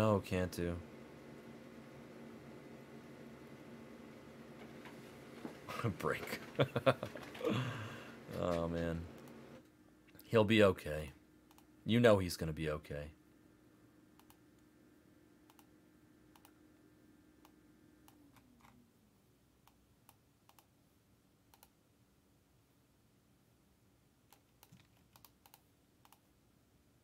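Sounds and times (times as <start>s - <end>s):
faint low hum: 0.0s - 27.0s
keyboard typing clicks: 14.2s - 14.4s, 15.5s - 15.7s, 16.3s - 16.6s, 19.6s - 20.7s, 21.5s - 21.8s, 24.3s - 26.3s.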